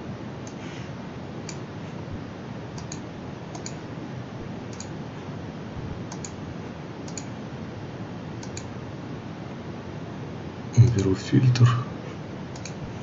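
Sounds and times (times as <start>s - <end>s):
background hiss: 0.0s - 13.0s
computer mouse clicks: 2.8s - 3.8s, 4.7s - 4.9s, 6.1s - 6.4s, 7.0s - 7.3s, 8.4s - 8.7s, 12.5s - 12.8s.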